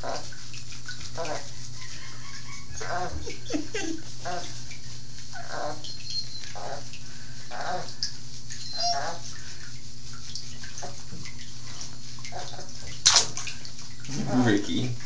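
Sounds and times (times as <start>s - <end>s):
lather squishing on wet fur: 0.0s - 15.0s
soft puppy grunts: 8.6s - 9.3s.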